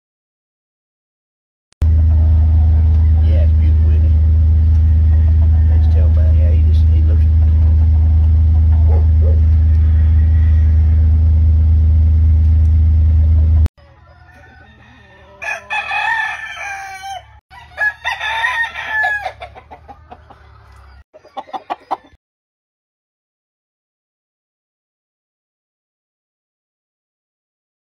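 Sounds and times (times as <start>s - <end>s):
loud low hum: 1.8s - 13.7s
rooster crowing: 4.8s - 6.1s, 8.9s - 11.4s, 13.8s - 22.2s.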